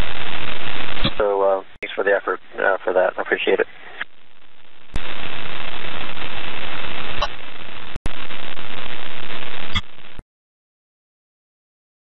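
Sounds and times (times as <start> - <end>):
radio static hiss: 0.0 - 10.2
sharp radio clicks: 1.0 - 2.0.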